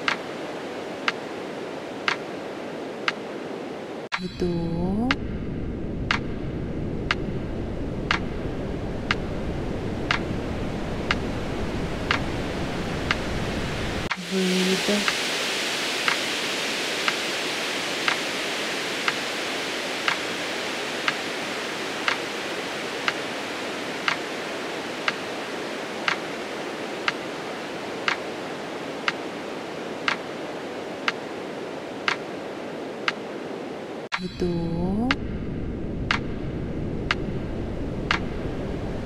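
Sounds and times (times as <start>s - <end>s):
steady rushing hiss: 0.0s - 5.2s, 6.0s - 34.3s.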